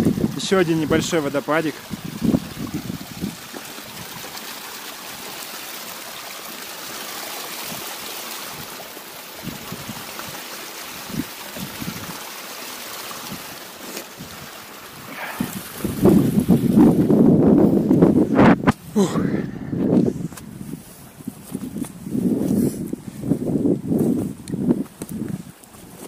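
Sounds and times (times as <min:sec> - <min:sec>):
small waterfall splashing: 0:00.0 - 0:19.2.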